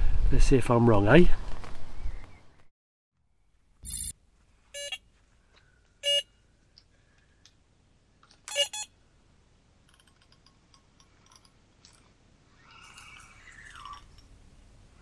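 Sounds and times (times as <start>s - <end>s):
bite alarm beeps: 4.8s - 5.0s, 6.0s - 6.3s.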